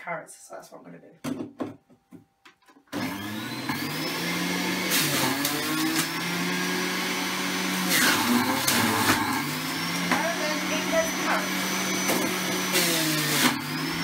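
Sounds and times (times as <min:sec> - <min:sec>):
juicer motor whining: 0:02.9 - 0:14.0.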